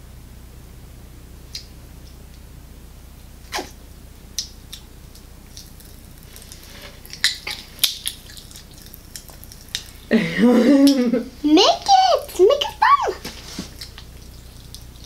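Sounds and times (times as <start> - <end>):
candy popping in mouth: 4.4 - 10.0.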